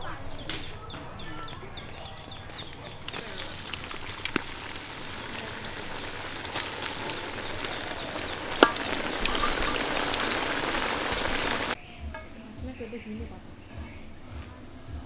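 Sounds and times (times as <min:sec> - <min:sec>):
potatoes sizzling in hot oil: 0:03.1 - 0:11.8.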